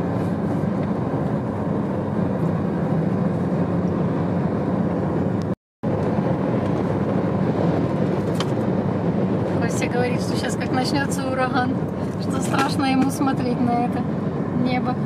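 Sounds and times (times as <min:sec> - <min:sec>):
car road noise inside cabin: 0:00.0 - 0:15.0.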